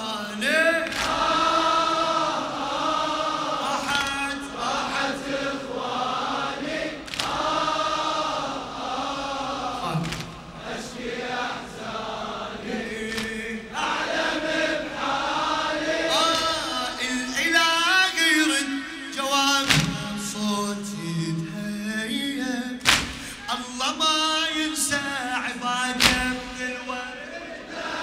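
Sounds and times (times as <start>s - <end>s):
man singing a lament: 0.0s - 1.8s, 3.5s - 5.2s, 9.8s - 10.1s, 12.7s - 14.1s, 16.0s - 27.6s
men chanting a refrain: 0.0s - 21.1s, 22.2s - 28.0s.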